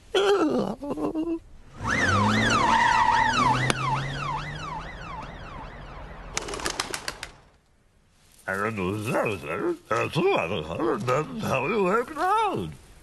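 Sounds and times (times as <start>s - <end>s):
police siren sweeping: 1.7s - 6.4s.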